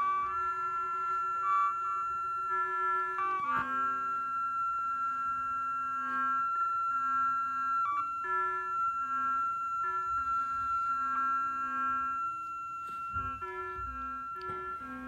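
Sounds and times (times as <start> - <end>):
high steady synthesizer tone: 0.0 - 15.0.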